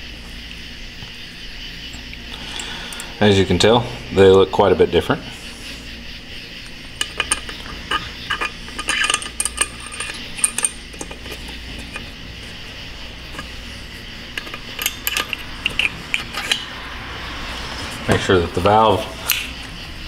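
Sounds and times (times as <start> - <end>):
small metal parts clinking: 2.3 - 3.3, 6.6 - 12.6, 13.2 - 16.7.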